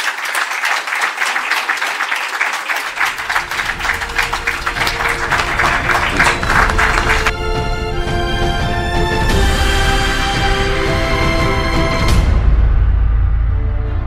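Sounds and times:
audience applauding: 0.0 - 7.4
music: 3.0 - 14.0.

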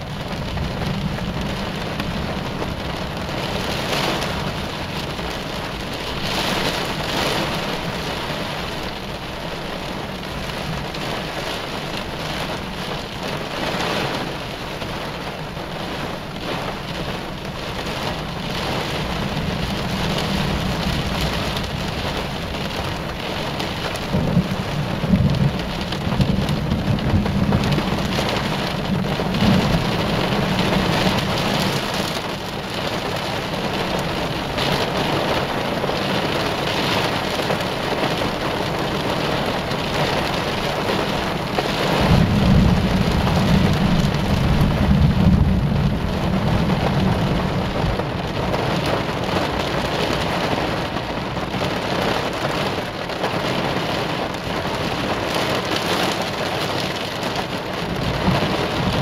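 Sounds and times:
low thunder rumble: 0.0 - 56.1, 57.4 - 59.0
heavy rain falling: 0.0 - 59.0
loud thunder rumble: 17.8 - 50.3, 57.6 - 59.0.

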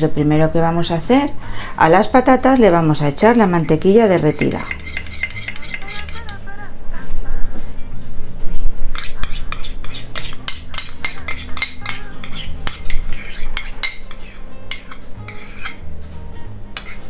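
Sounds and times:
metal spoon scraping ceramic bowl: 3.2 - 6.4, 8.9 - 15.9, 16.8 - 17.0.

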